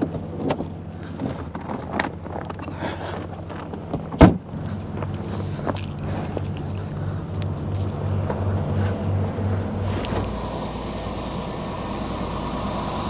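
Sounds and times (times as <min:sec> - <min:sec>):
engine idling: 0:00.0 - 0:13.0
heavy thump: 0:04.0 - 0:04.6
footsteps on slushy asphalt: 0:04.6 - 0:10.2.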